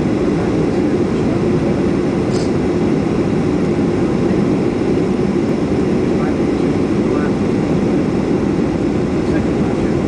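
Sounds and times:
airliner cabin engine drone: 0.0s - 10.0s.

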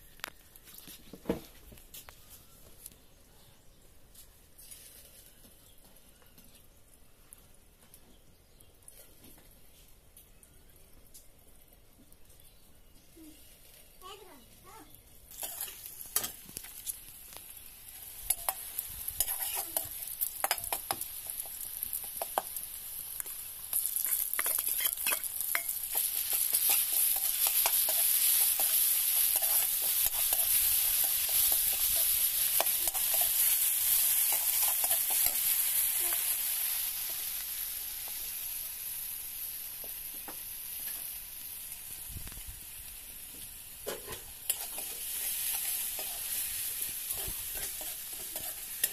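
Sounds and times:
onions sizzling in oil: 12.2s - 48.9s
spatula scraping pan: 15.4s - 16.4s, 19.2s - 21.0s, 24.0s - 35.5s, 47.1s - 48.9s.

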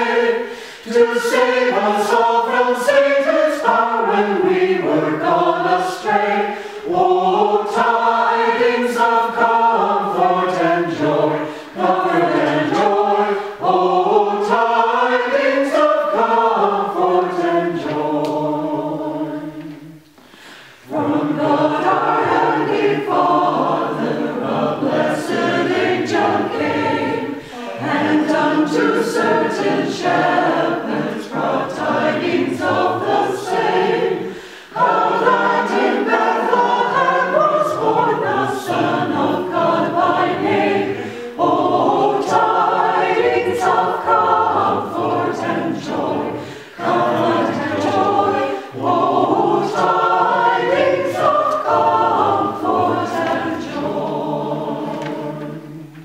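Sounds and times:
mixed choir singing a carol: 0.0s - 56.0s.

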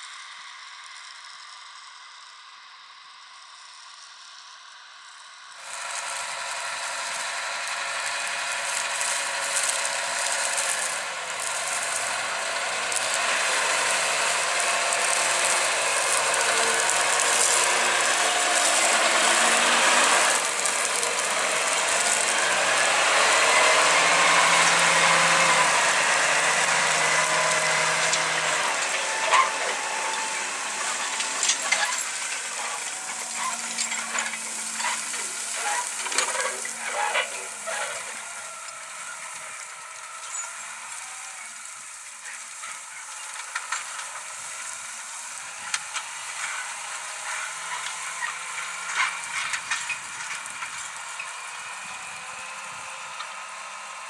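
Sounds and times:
tractor diesel engine under load: 5.2s - 54.0s
plough clattering: 7.0s - 41.0s.

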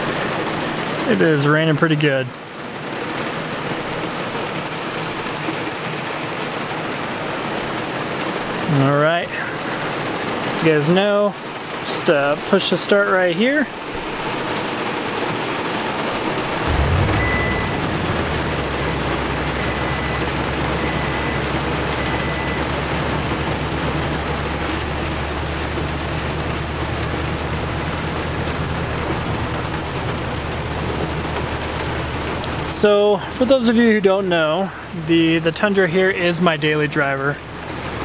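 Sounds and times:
heavy rain on roof: 0.0s - 38.0s
truck engine starting and idling: 13.5s - 33.6s
short high beeps: 16.7s - 22.6s.

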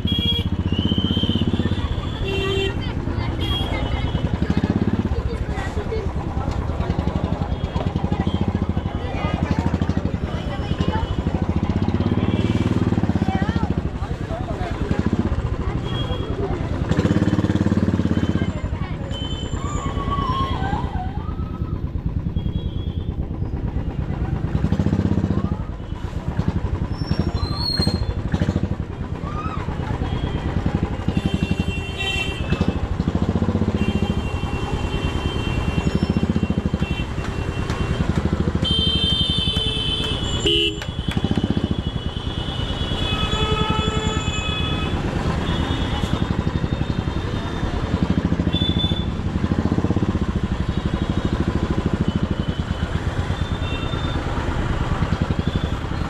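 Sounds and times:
vehicle horns honking: 0.0s - 4.5s, 30.1s - 32.8s, 33.6s - 47.7s, 48.4s - 49.2s
motorcycle engine running: 0.0s - 56.0s.

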